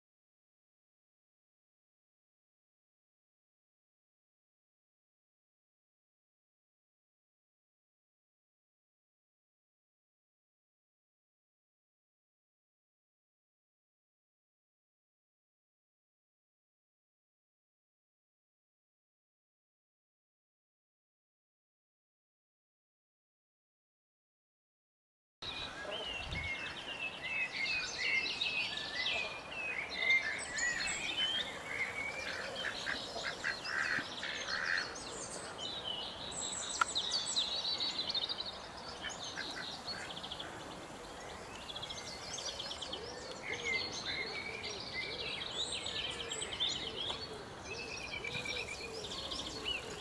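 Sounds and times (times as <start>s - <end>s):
small birds twittering and singing: 25.4s - 50.0s.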